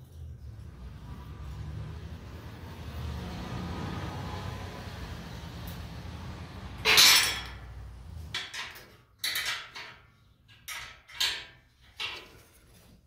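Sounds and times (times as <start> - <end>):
metal tools clanking: 6.8 - 12.8.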